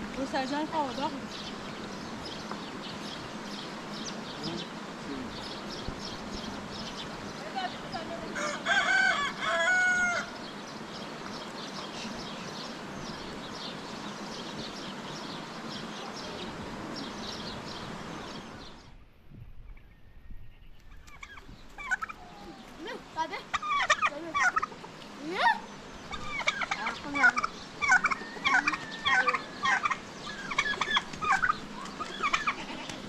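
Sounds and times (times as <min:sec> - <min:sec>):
small birds chirping: 0:00.0 - 0:19.0, 0:19.6 - 0:33.0
rooster crowing: 0:08.3 - 0:10.4, 0:27.8 - 0:30.6.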